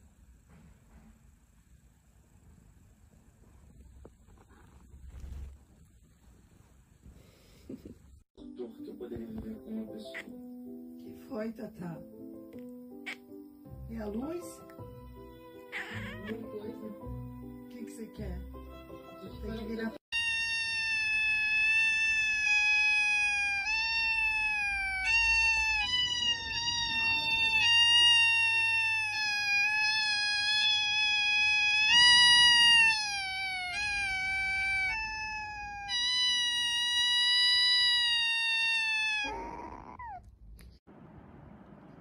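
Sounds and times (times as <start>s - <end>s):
kitten meowing loudly: 15.7s - 16.4s, 20.1s - 40.2s.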